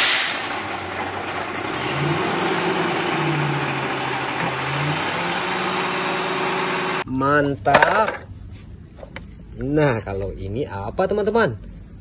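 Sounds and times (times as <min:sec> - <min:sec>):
air brake hiss: 0:00.0 - 0:00.7
truck engine revving: 0:00.0 - 0:07.0.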